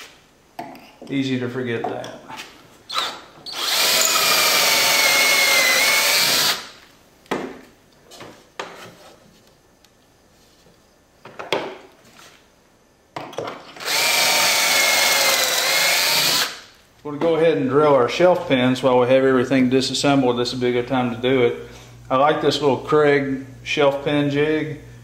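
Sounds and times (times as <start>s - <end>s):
cordless drill whining: 2.9s - 6.7s, 13.8s - 16.6s.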